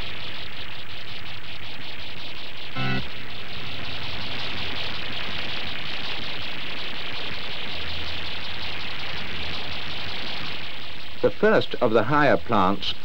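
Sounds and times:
film soundtrack hiss: 0.0 - 13.0
low buzzy tone: 2.5 - 11.3.

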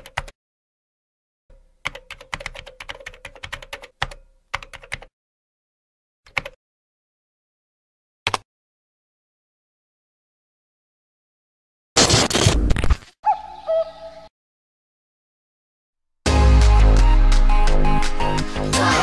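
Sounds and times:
computer keyboard typing: 0.0 - 0.3, 1.8 - 5.1, 6.3 - 6.6.

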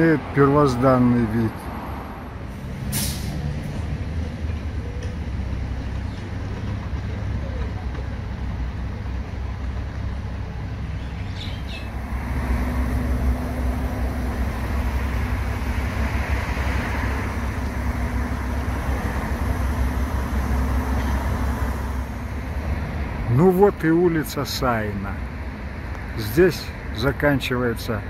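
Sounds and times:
cars passing: 0.0 - 28.0
truck passing: 0.0 - 28.0.

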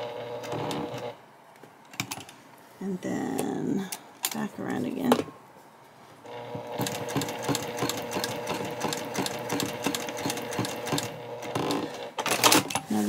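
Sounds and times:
sewing machine stitching: 0.0 - 1.2, 6.3 - 13.0.

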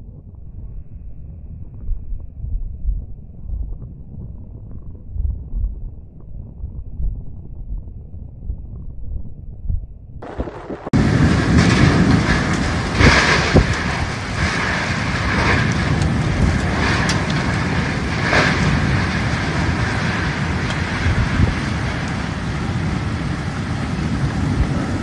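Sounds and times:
storm wind: 0.0 - 25.0
wind buffeting microphone: 0.0 - 25.0
heavy rain: 10.2 - 25.0.

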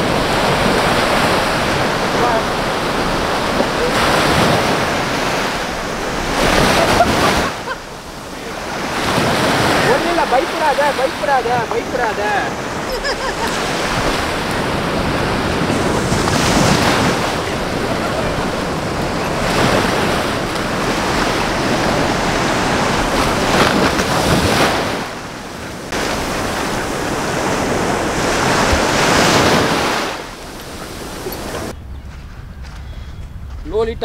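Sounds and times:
surf breaking on beach: 0.0 - 31.7
wind buffeting microphone: 0.0 - 34.0.

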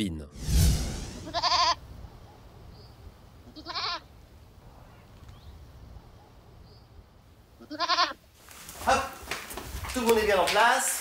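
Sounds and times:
goat bleating: 1.2 - 1.8, 3.4 - 4.1, 7.6 - 8.2.

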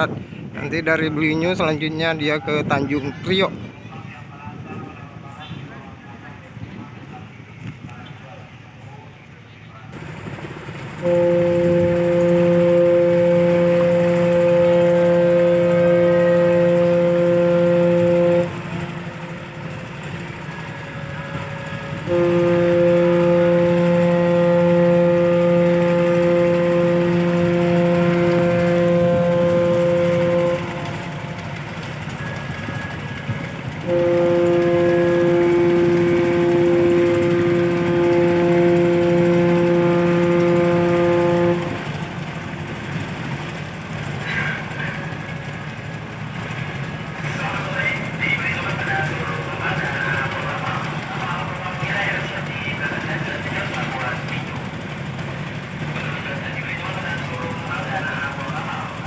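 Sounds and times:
steady engine hum: 2.4 - 59.0
deep ship horn blasts: 10.9 - 45.7.

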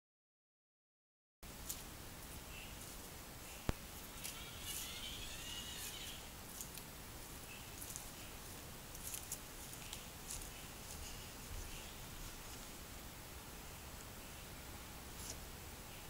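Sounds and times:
faint high motor whirr: 1.9 - 16.0.

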